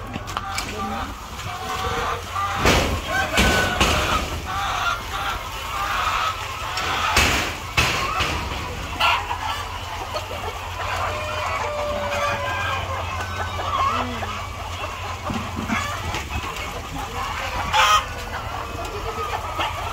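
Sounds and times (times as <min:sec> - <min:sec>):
hens clucking: 0:00.0 - 0:19.9
sharp knocks: 0:07.1 - 0:08.8.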